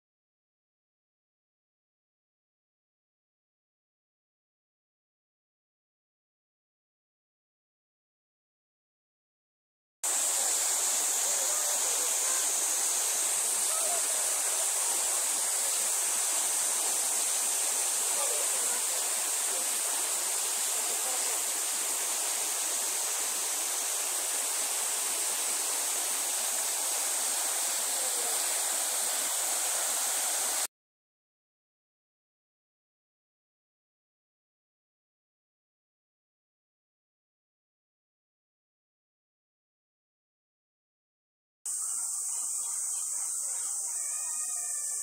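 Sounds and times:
outdoor ambient hiss: 10.0s - 30.7s, 41.7s - 45.0s.

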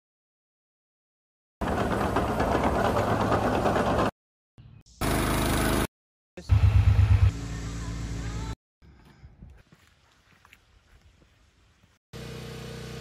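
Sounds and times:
engine with fast low clatter: 1.6s - 4.1s
engine running steadily: 5.0s - 5.9s, 12.2s - 13.0s.

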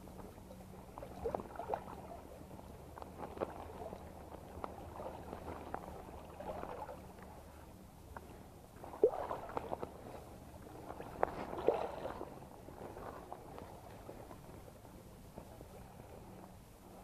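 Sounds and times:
water sloshing and gurgling: 0.0s - 17.0s
fish splashing at water surface: 8.8s - 10.0s.

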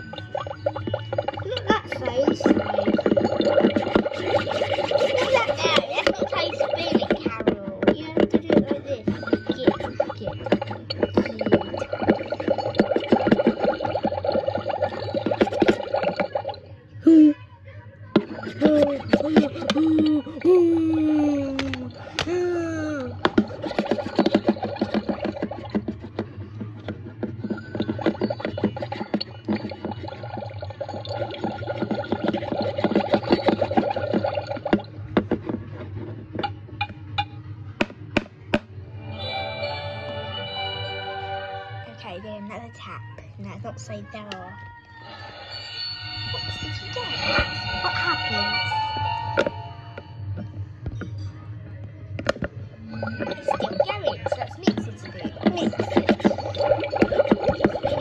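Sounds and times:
toy cauldron bubbling pops: 0.0s - 16.6s, 18.2s - 22.4s, 23.0s - 35.6s, 53.0s - 58.0s.

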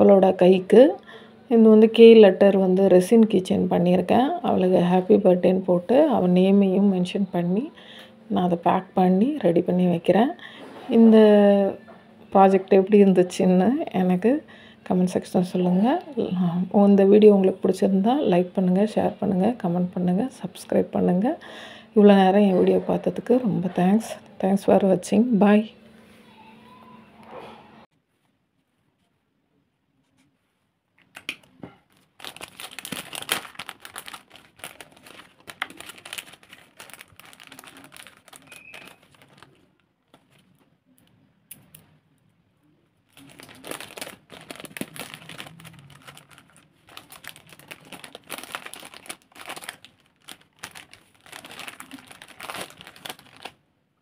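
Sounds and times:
plastic bag crinkling: 31.4s - 40.6s, 43.1s - 53.6s.

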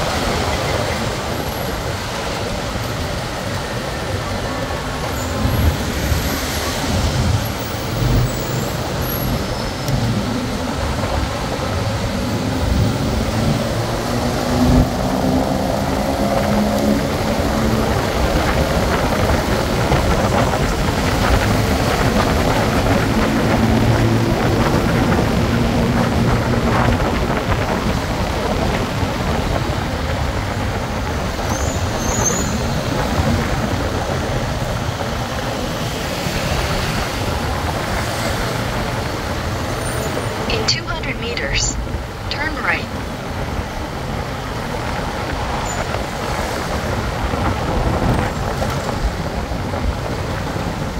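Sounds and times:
road and traffic noise: 0.0s - 50.9s.

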